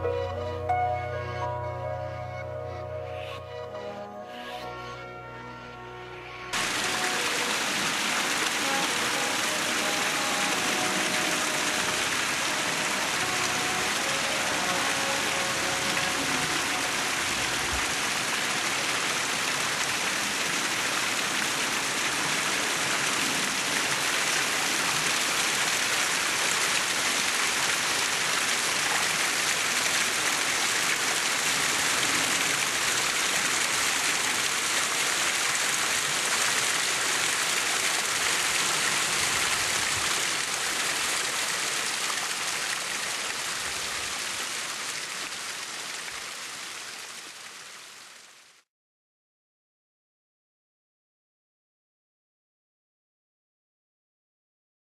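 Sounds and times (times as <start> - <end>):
stream splashing over rocks: 6.6 - 48.6.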